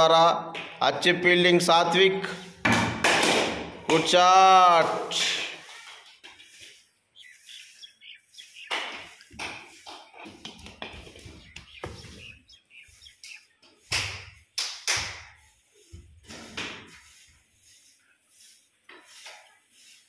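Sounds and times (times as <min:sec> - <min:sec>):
taps and knocks in concrete room: 0:00.5 - 0:01.1, 0:02.6 - 0:04.2, 0:08.7 - 0:12.2, 0:13.2 - 0:17.1.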